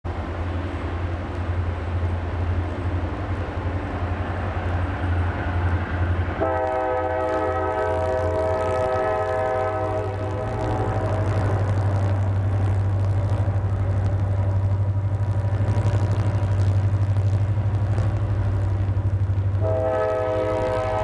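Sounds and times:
diesel locomotive rumbling: 0:00.0 - 0:21.0
multi-tone air horn blast: 0:06.4 - 0:11.5, 0:19.6 - 0:21.0.

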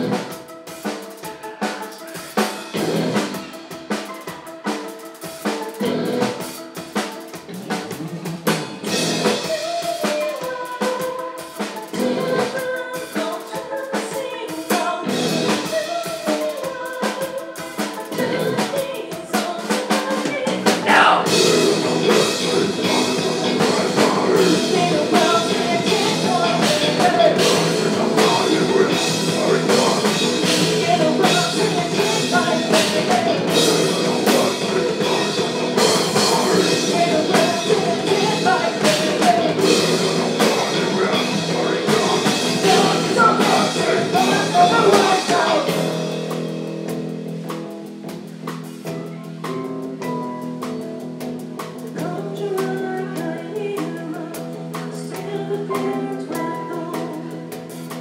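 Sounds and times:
live rock band playing: 0:00.0 - 0:58.0
woman singing into a microphone: 0:08.8 - 0:45.9, 0:51.9 - 0:57.8.

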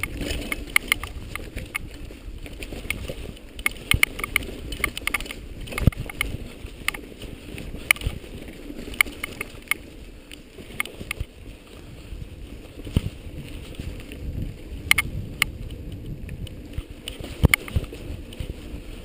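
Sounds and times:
sharp clicks and knocks: 0:00.0 - 0:01.9, 0:02.7 - 0:07.0, 0:08.9 - 0:09.8, 0:14.8 - 0:15.5
camera handling rumble: 0:00.0 - 0:11.4, 0:12.2 - 0:19.0.

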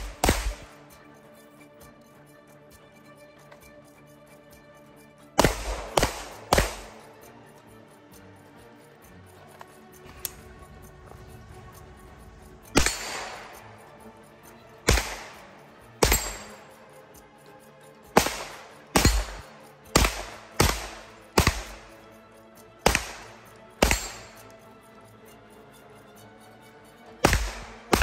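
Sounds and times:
gunshots with short echo: 0:00.0 - 0:00.8, 0:05.4 - 0:07.1, 0:12.7 - 0:13.7, 0:14.9 - 0:16.6, 0:18.2 - 0:21.9, 0:22.8 - 0:24.4, 0:27.2 - 0:28.0
background music: 0:00.0 - 0:28.0.

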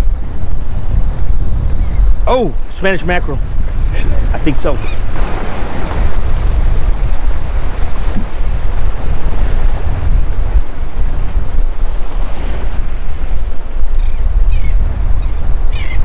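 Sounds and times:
wind buffeting microphone: 0:00.0 - 0:16.0
waves splashing against rocks: 0:04.0 - 0:13.8.

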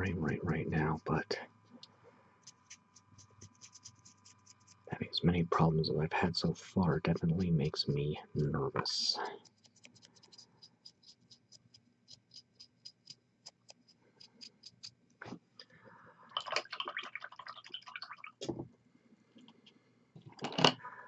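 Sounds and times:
scratchy rustle: 0:02.4 - 0:04.8.

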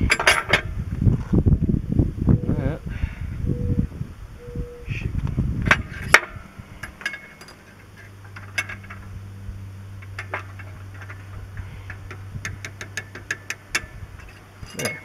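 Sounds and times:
metallic clicks of hand tools: 0:11.8 - 0:15.0.

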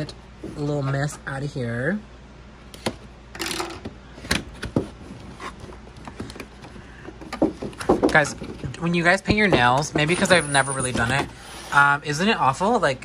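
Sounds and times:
cardboard rustling scrape: 0:04.8 - 0:05.9.

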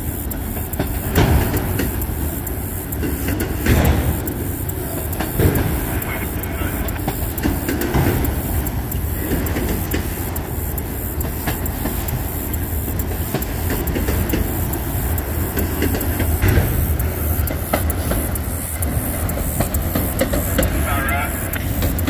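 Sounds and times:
train wheels rumbling on rail: 0:00.0 - 0:22.0
wheels clacking over rail joints: 0:00.0 - 0:22.0.

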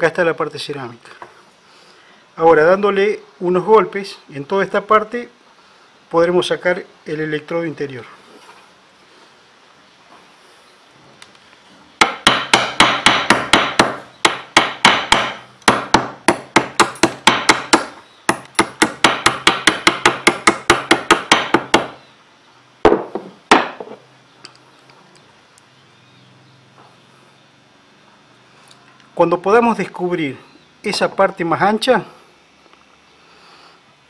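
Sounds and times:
hammer striking ceramic on vise: 0:12.0 - 0:22.0, 0:22.9 - 0:24.0.

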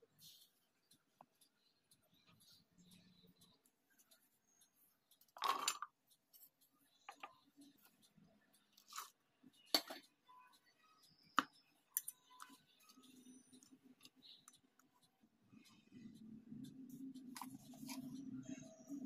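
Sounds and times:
clinks and taps: 0:05.2 - 0:06.4, 0:07.0 - 0:07.5, 0:08.8 - 0:10.1.

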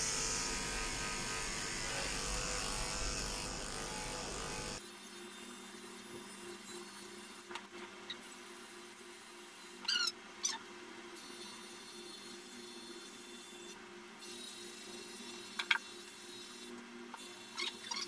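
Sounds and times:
electric clippers buzzing: 0:00.0 - 0:04.8.

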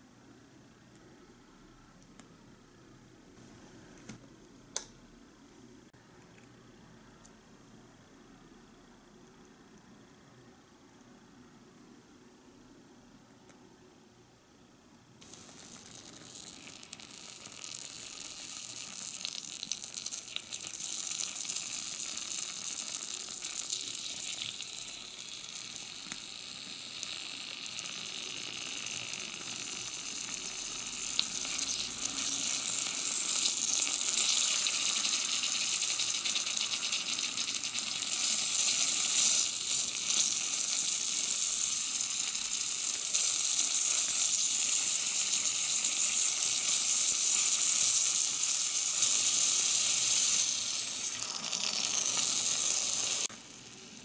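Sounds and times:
beef sizzling in a pot: 0:15.2 - 0:54.0.

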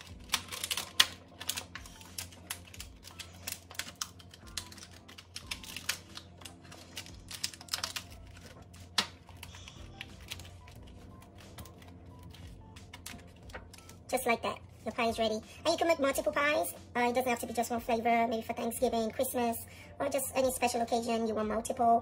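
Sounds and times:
faint background music: 0:00.0 - 0:22.0.

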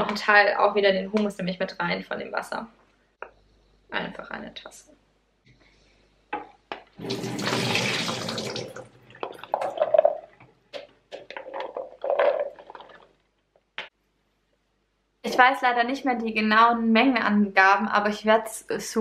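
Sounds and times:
water splashing into a sink: 0:07.0 - 0:10.4.

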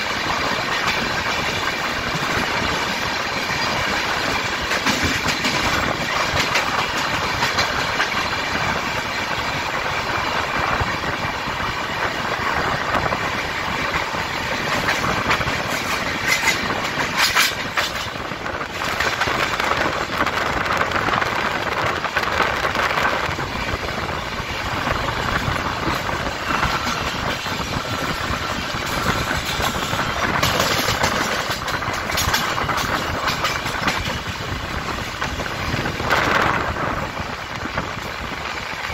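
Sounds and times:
wheels clattering over track joints: 0:00.0 - 0:08.8, 0:13.8 - 0:20.2, 0:25.1 - 0:36.6
train wheel and rail rush: 0:00.0 - 0:38.9.

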